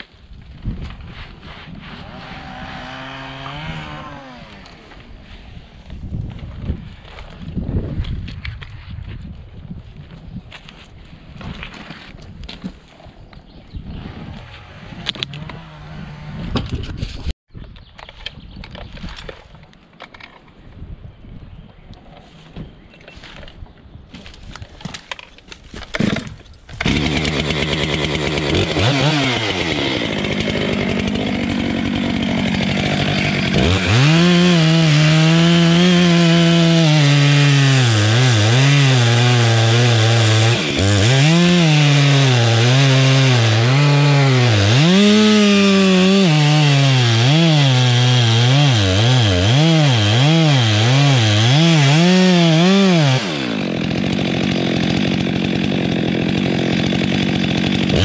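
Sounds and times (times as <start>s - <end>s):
chainsaw engine revving: 2.1s - 5.1s, 14.1s - 16.6s, 26.0s - 58.0s.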